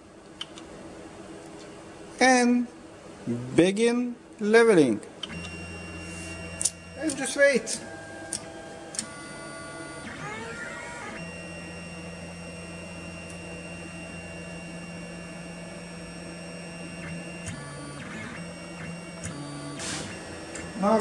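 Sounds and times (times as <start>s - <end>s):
stepper motors whining: 5.3s - 21.0s.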